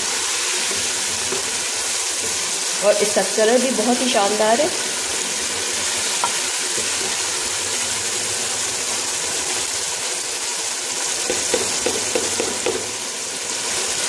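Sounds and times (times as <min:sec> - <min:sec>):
spatula stirring: 0:00.0 - 0:02.8, 0:04.7 - 0:07.9
curry sizzling in a pot: 0:00.0 - 0:14.0.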